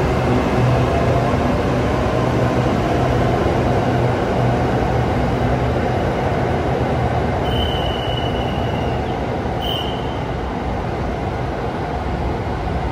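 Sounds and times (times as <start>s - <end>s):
high-pitched train squeals: 7.4s - 10.3s.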